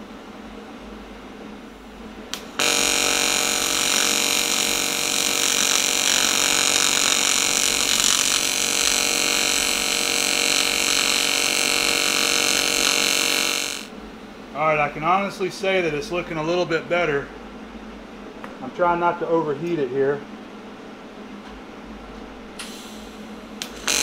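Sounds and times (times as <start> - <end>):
welding arc buzzing: 2.3 - 14.0, 23.6 - 24.0.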